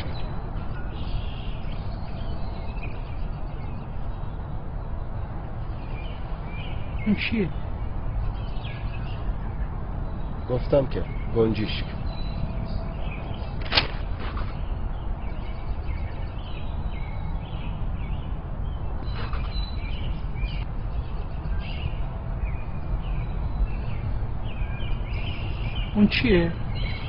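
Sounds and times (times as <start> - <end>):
sparrow chirping: 0.0 - 27.0
sharp click: 13.6 - 14.6.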